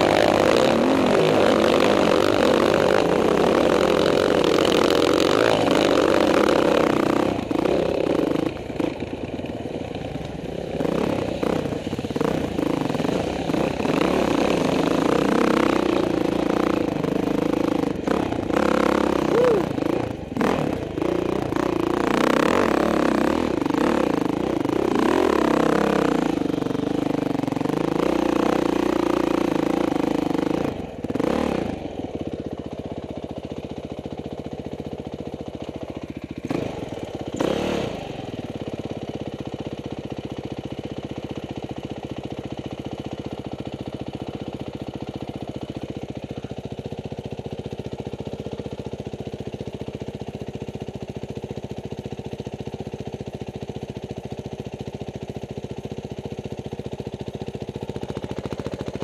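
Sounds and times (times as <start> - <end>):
dirt bike engine revving and idling: 0.0 - 59.0.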